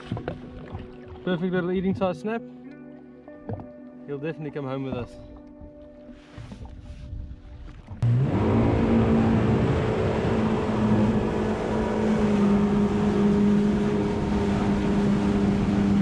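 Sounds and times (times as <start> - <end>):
wind: 0.0 - 16.0
jet ski engine running: 8.0 - 16.0.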